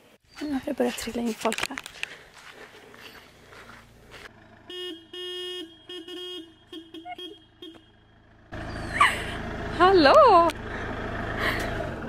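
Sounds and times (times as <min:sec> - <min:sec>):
vehicle horn honking: 0:04.6 - 0:08.2.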